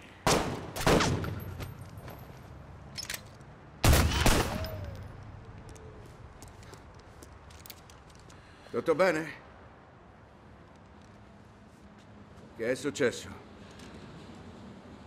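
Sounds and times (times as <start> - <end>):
handgun shots with long echo: 0.3 - 1.4.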